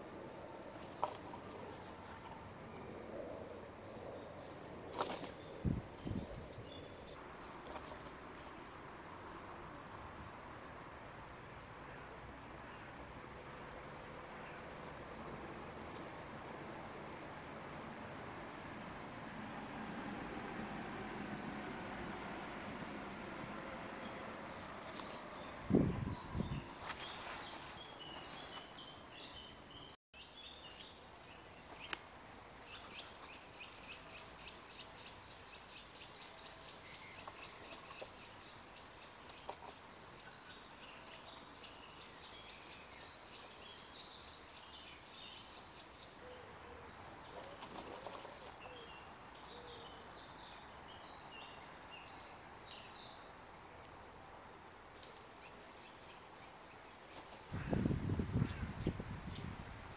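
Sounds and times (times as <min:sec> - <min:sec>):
songbirds chirping and trilling: 0:00.0 - 0:59.6
brief rustle: 0:24.8 - 0:25.5, 0:26.8 - 0:28.8.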